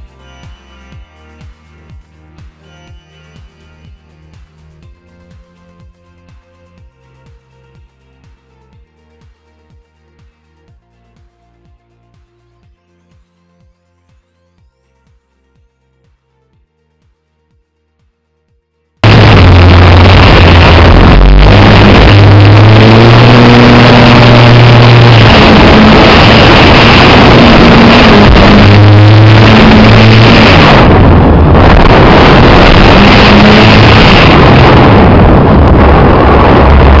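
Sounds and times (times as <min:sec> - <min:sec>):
wind rush: 0:19.0 - 0:37.0.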